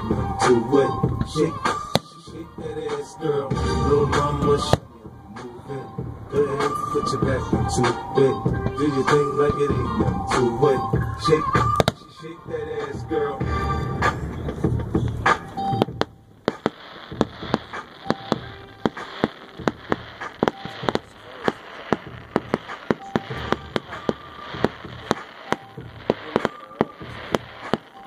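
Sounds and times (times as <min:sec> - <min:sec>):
distant fireworks bangs and pops: 0:07.2 - 0:12.2, 0:12.8 - 0:28.0.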